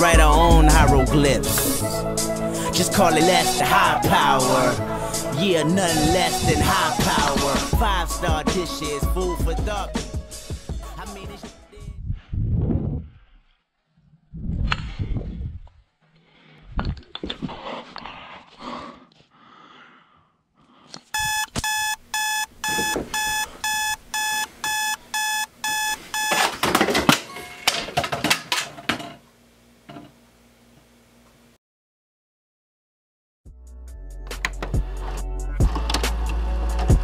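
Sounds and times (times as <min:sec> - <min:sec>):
alarm clock beeping: 0:21.2 - 0:26.5.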